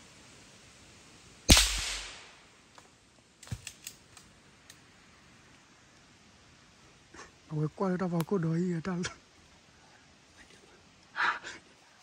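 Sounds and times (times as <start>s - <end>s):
gunshot: 1.5s - 2.4s.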